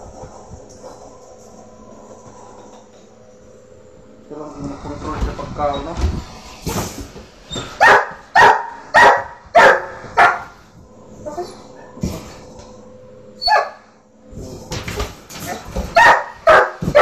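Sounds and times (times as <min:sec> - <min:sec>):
dog barking: 0:07.8 - 0:10.5, 0:15.9 - 0:17.0.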